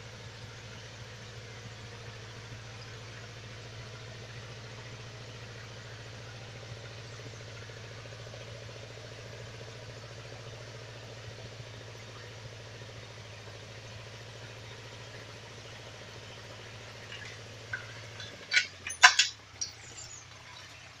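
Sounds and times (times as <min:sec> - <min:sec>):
tractor engine idling: 0:00.0 - 0:21.0
metallic clinks and knocks: 0:17.1 - 0:20.2.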